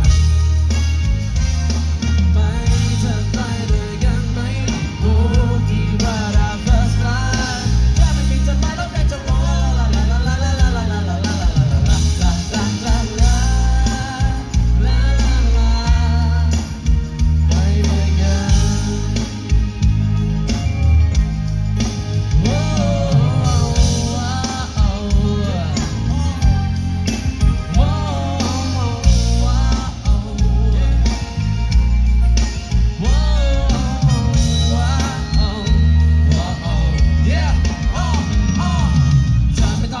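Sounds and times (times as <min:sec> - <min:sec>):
guitar: 0:00.0 - 0:40.0
heavy bass: 0:00.0 - 0:40.0
man singing with vibrato: 0:01.9 - 0:40.0.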